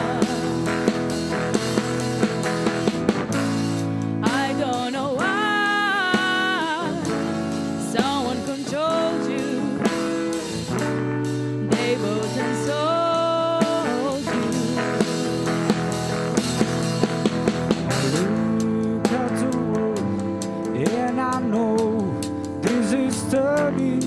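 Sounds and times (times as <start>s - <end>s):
woman singing: 0.0s - 1.1s, 4.2s - 10.4s, 11.6s - 15.6s
clean electric guitar: 0.0s - 24.0s.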